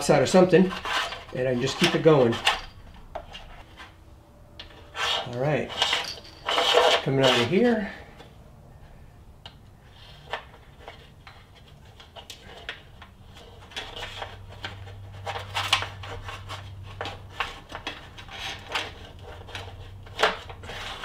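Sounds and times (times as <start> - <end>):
wires rubbing against metal: 0.0 - 4.0, 4.7 - 8.0.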